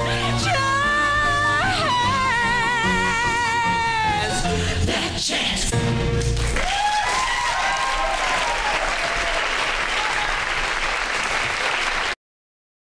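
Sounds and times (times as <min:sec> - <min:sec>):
audience applauding: 0:06.2 - 0:12.2
whooping cheers: 0:06.6 - 0:10.6.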